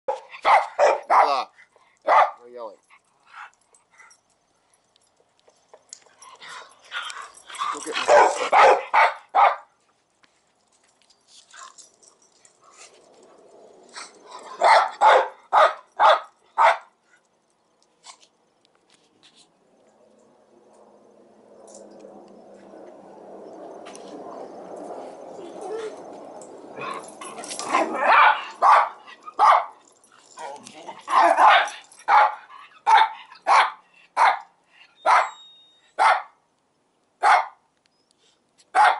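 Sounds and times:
dog barking: 0.1s - 1.4s, 2.0s - 2.4s, 7.8s - 9.7s, 14.6s - 16.9s, 27.8s - 29.8s, 31.1s - 35.4s, 36.0s - 36.4s, 37.2s - 37.6s.

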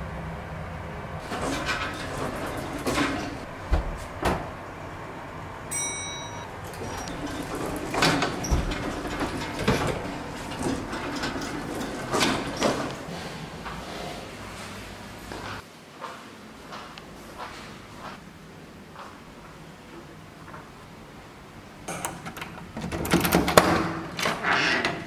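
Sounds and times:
lift doors sliding and clunking: 1.2s - 15.6s, 21.8s - 25.0s
footsteps on tiled floor: 8.6s - 18.2s.

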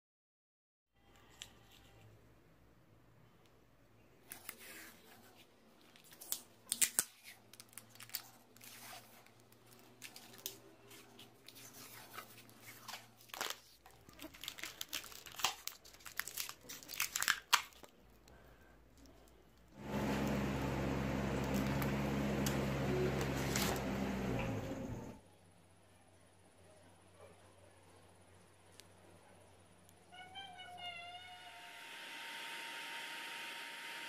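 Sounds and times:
tape crinkling: 4.2s - 19.7s, 21.4s - 24.0s
packing tape pulled off roll: 21.4s - 24.1s.

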